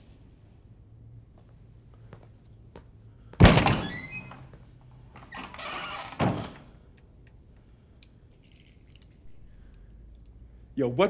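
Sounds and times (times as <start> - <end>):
heavy thud: 3.4 - 4.4.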